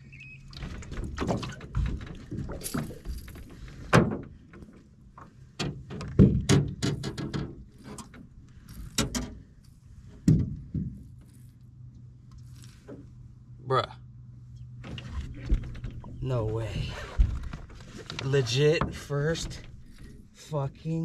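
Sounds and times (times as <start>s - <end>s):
knocks on aluminum boat: 10.2s - 11.0s.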